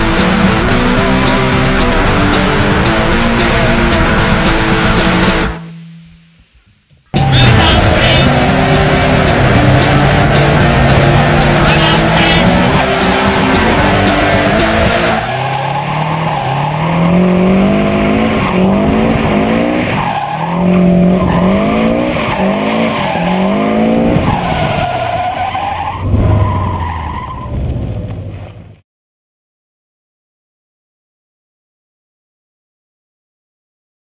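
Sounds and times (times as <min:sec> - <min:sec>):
car engine revving: 0:00.0 - 0:05.7, 0:07.1 - 0:28.8
tyres skidding: 0:07.1 - 0:28.8.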